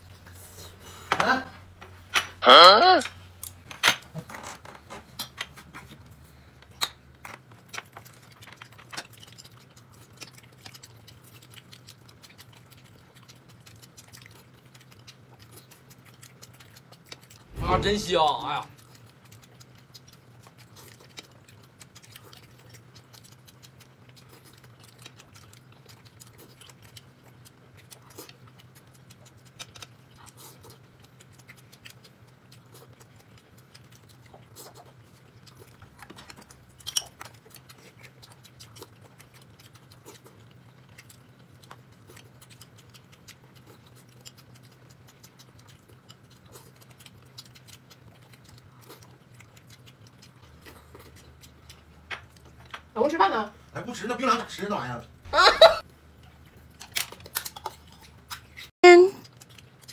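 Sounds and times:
steady low hum: 11.0 - 56.8.

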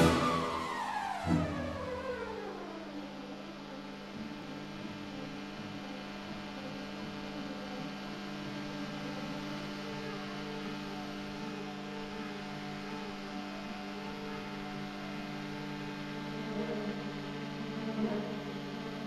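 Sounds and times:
ultralight aircraft engine droning: 0.0 - 19.0.

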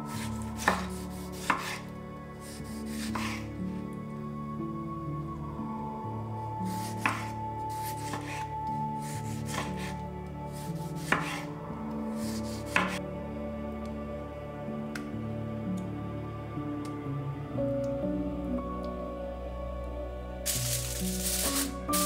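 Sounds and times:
knife slicing tomato: 0.1 - 1.8, 2.4 - 3.4, 6.7 - 10.0, 10.6 - 11.5, 12.2 - 13.0.

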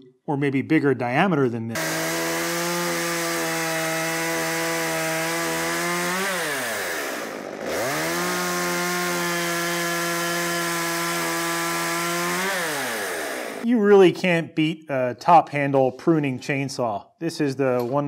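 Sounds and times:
chainsaw cutting tree limb: 1.8 - 13.6.

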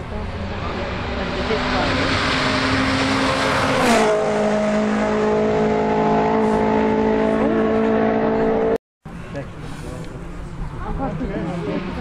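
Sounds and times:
rally car engine passing by: 0.0 - 8.8.

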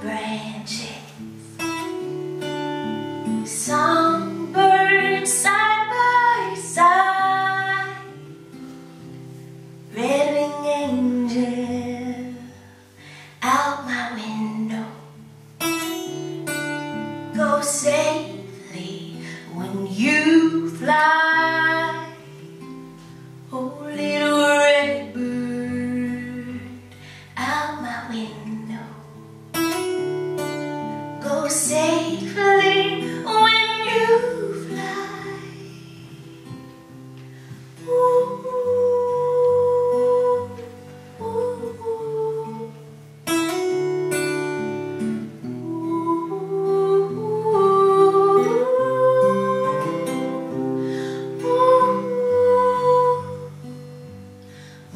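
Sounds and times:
strummed acoustic guitar: 0.0 - 54.9
woman singing long notes: 30.8 - 36.6, 37.8 - 42.9, 45.6 - 53.6.

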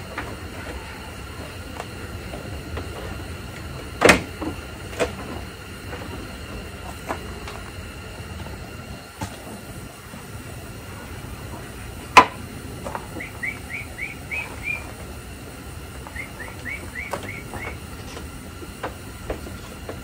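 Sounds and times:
songbird chirping: 13.2 - 14.8.

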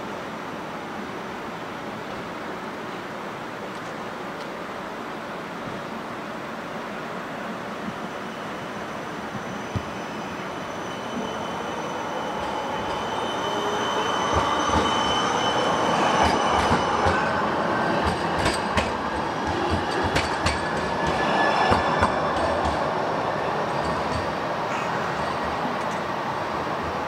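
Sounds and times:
tram passing: 1.2 - 27.0
high wheel squeal: 8.2 - 18.4, 19.8 - 22.9.

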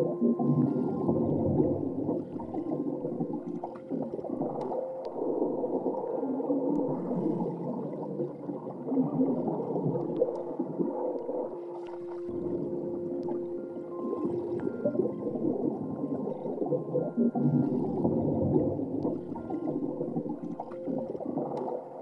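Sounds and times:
underwater gurgling and bubbling: 0.0 - 22.0
faint clicks: 2.1 - 5.2, 19.0 - 21.9.

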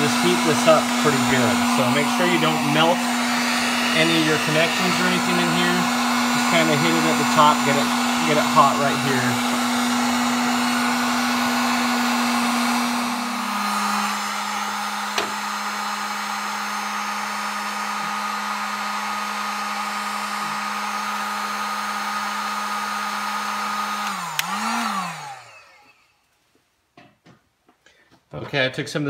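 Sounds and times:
heat gun motor hum: 0.0 - 26.2
heat gun switch click: 24.0 - 24.6.

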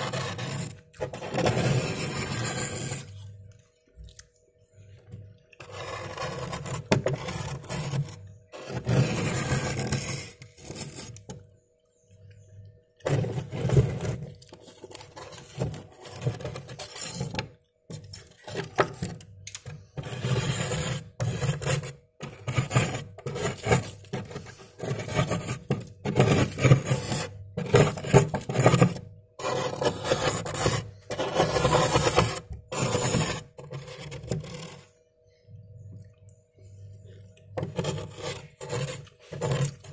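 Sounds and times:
steel spoon scraping frost: 0.0 - 3.2, 5.6 - 11.2, 14.7 - 18.7, 20.0 - 34.9, 37.6 - 39.9.

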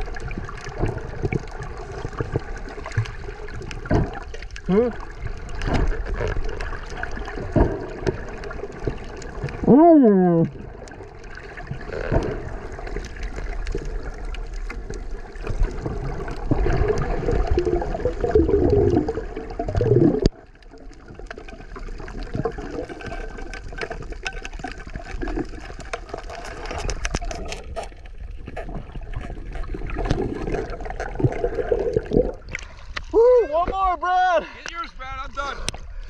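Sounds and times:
water gurgling and sloshing: 0.0 - 33.7
underwater ambience: 0.0 - 34.0, 34.6 - 36.0
faint underwater clicks: 10.4 - 33.1, 34.6 - 36.0.

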